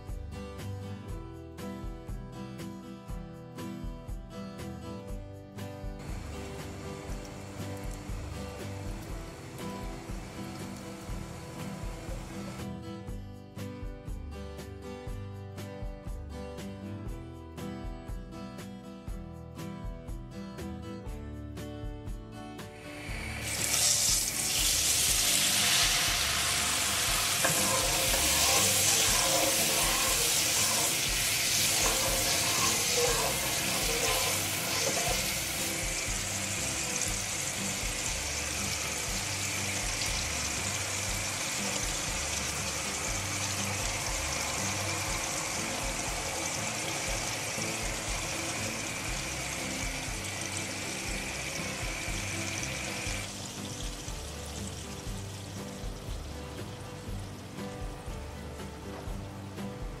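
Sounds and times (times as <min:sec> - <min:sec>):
background music: 0:00.0 - 1:00.0
water sizzling in hot oil: 0:06.0 - 0:12.6, 0:22.7 - 1:00.0.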